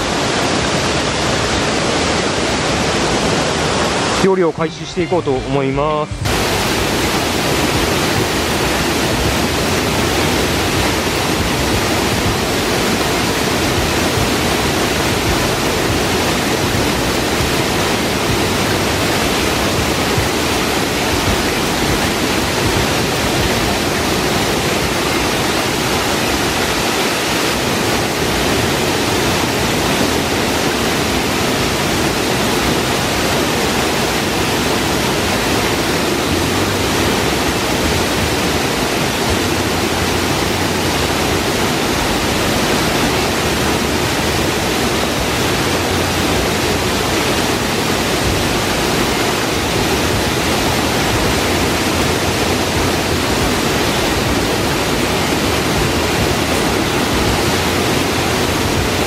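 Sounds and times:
stream roaring over a weir: 0.0s - 59.0s.

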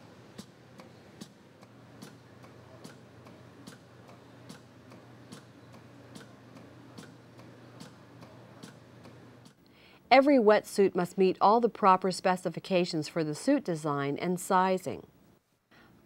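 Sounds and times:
machinery ticking: 0.0s - 9.6s
low steady hum: 0.0s - 16.0s.

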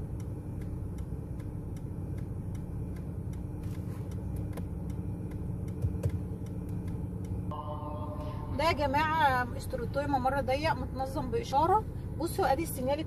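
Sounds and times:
turn signal ticking: 0.0s - 7.5s
car engine idling: 0.0s - 13.0s.

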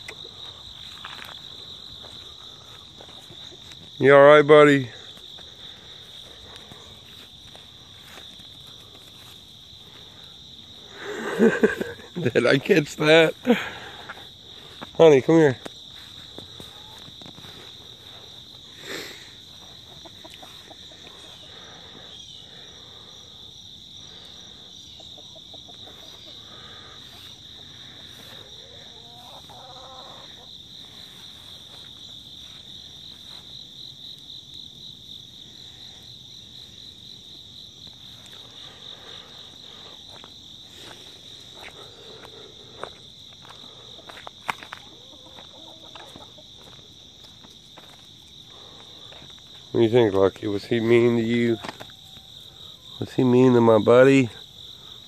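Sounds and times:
chickens clucking: 0.0s - 4.0s, 16.1s - 22.2s, 24.1s - 31.8s, 43.6s - 47.6s
insects trilling: 0.0s - 55.0s.

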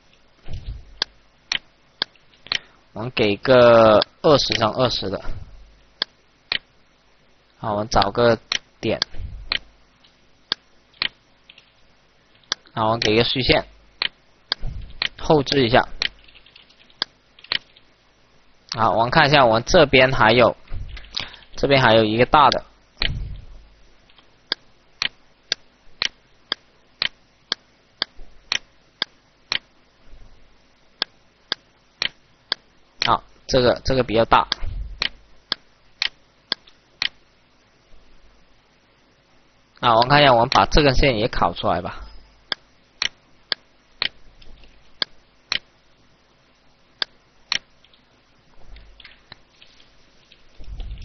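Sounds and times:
computer mouse clicks: 0.1s - 2.7s, 6.0s - 6.7s, 8.0s - 11.7s, 14.0s - 17.9s, 24.1s - 29.7s, 31.0s - 33.2s, 34.5s - 37.2s, 42.5s - 45.7s, 47.0s - 48.0s.

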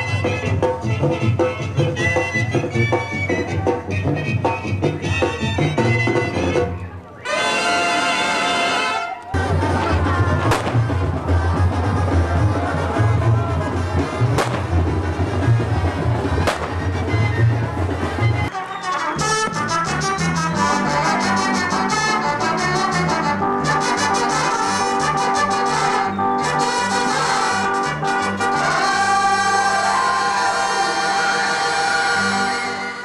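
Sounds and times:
carnival music with pulsing beat: 0.0s - 6.8s, 9.4s - 33.0s
brass band playing: 0.0s - 33.0s
sharp cracks: 10.5s - 10.9s, 14.4s - 14.8s, 16.5s - 16.8s.

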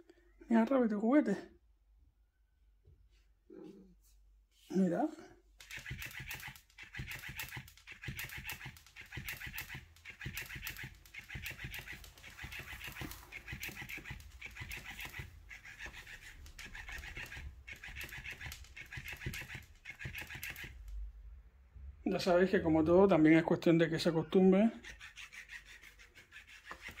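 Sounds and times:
toy motor ticking buzz: 5.6s - 20.9s, 24.8s - 27.0s
toy tail flapping on tabletop: 5.6s - 21.0s, 24.8s - 27.0s.

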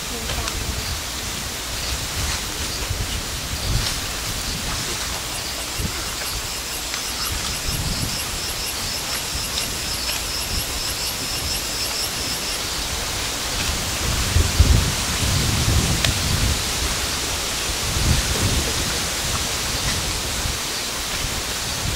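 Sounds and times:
steady hiss: 0.0s - 21.9s
high pulsed chirping: 0.8s - 13.6s.

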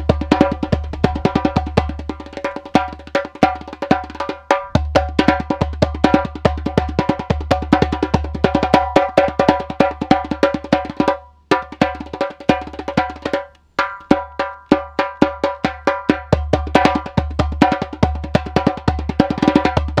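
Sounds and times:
djembe played with hands: 0.0s - 20.0s.

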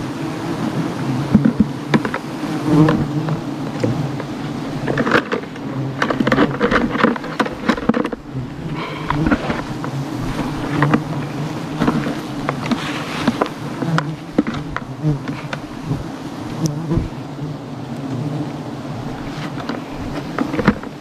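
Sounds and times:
bees buzzing: 0.0s - 21.0s
clicks and rustles: 1.3s - 15.7s, 19.2s - 21.0s.

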